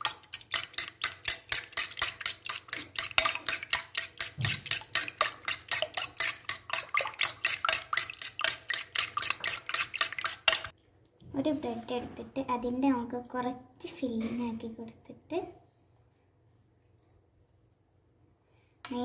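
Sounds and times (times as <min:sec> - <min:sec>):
spoon beating in steel bowl: 0:00.0 - 0:10.7.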